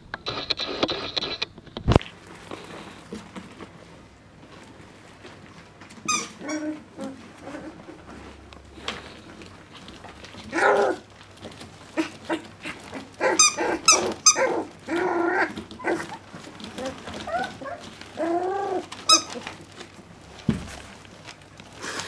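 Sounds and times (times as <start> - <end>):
puppy whining bark: 6.1 - 7.8, 10.5 - 11.0, 12.0 - 19.5
puppies yipping and barking: 11.9 - 19.8.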